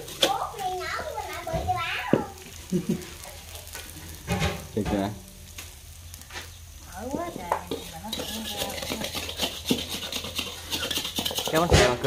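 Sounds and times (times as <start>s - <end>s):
batter sizzling: 0.0s - 12.0s
metal spatula scraping steel pan: 7.7s - 12.0s.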